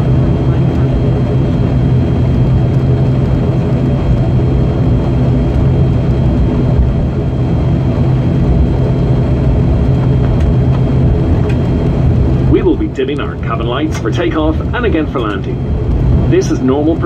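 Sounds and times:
turboprop engine drone: 0.0s - 17.0s.

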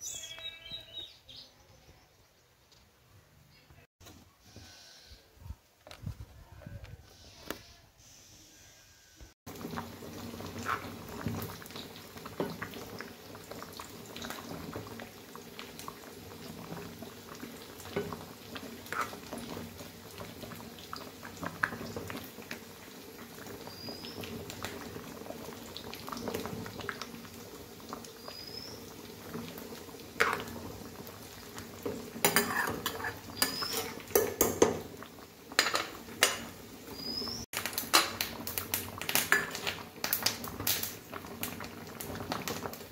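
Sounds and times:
thick curry bubbling in a pot: 9.5s - 42.9s
ladle clinking against a pot: 32.2s - 34.8s.

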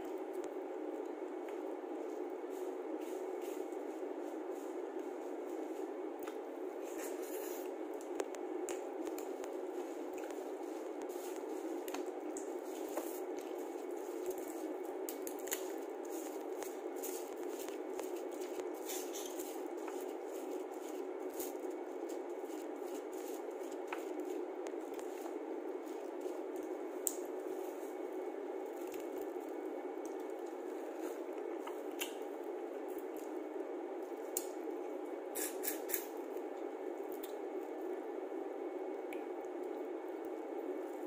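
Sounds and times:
steady background hiss: 0.0s - 41.0s
wet squishing and chewing: 7.6s - 27.7s, 28.5s - 38.0s.

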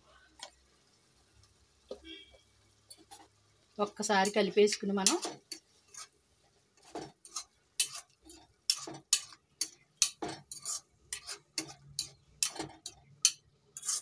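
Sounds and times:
steel spoon scraping a pan: 2.1s - 3.3s, 4.1s - 14.0s.

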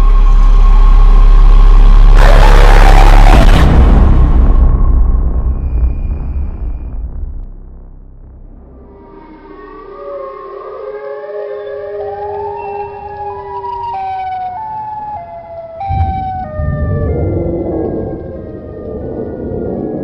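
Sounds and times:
loud low rumble: 0.0s - 9.8s, 15.8s - 20.0s
eerie synth music: 0.0s - 20.0s
wolf howl: 2.2s - 3.6s.

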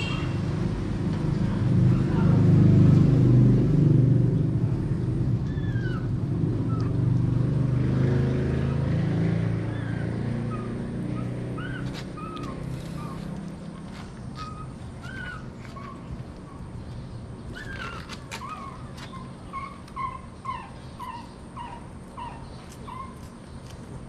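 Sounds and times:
vehicle engine running: 0.0s - 17.4s.

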